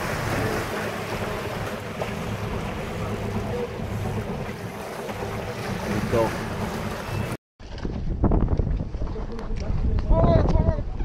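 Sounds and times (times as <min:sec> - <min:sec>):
low boat engine hum: 0:00.0 - 0:07.4
water washing: 0:00.0 - 0:07.4
wind on microphone: 0:00.0 - 0:11.0.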